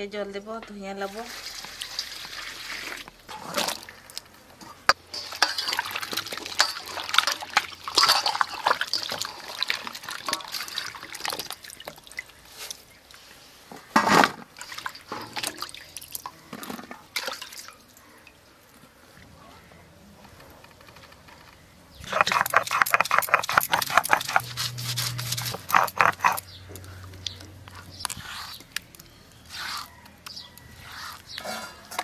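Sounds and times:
water splashing in a steel bowl: 1.1s - 4.0s, 5.0s - 13.2s, 14.5s - 18.4s.

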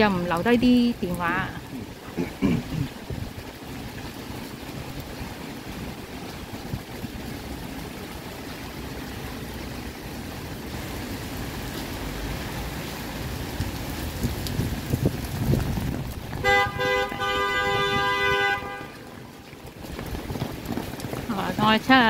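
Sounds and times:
rain hissing: 0.0s - 22.0s
street rumble: 0.0s - 22.0s
car horn toots and blast: 16.4s - 19.1s.

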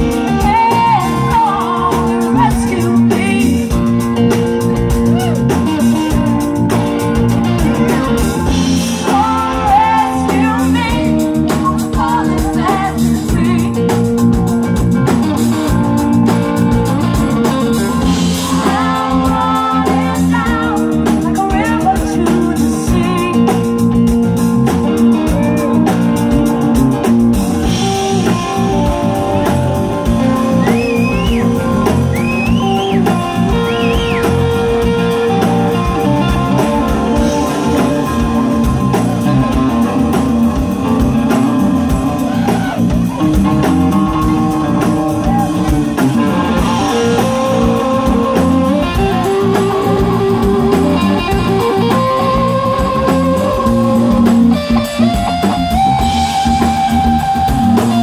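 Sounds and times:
live band playing: 0.0s - 58.0s
women singing: 8.9s - 13.9s, 18.2s - 23.3s.

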